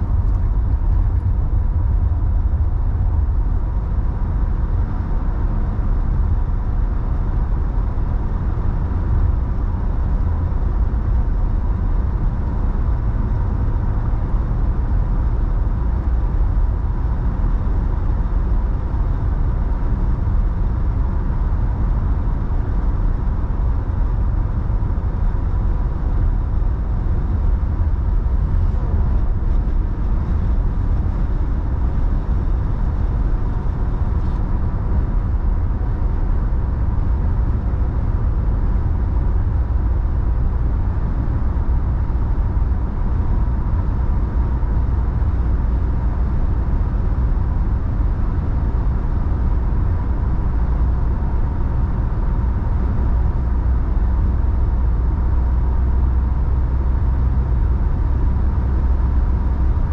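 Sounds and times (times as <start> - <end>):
road and tyre rumble: 0.0 - 59.9.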